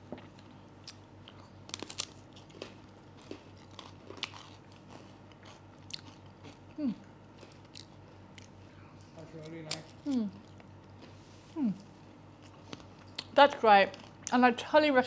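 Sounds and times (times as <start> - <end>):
cracker crunching: 0.2 - 8.6.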